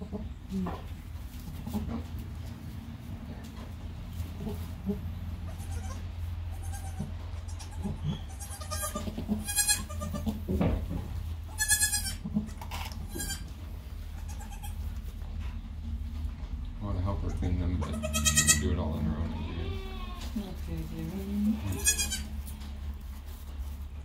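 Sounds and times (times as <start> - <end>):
steady low hum: 0.0 - 24.0
goat kids bleating: 4.2 - 10.5, 11.4 - 15.1, 17.3 - 20.6, 21.5 - 23.0.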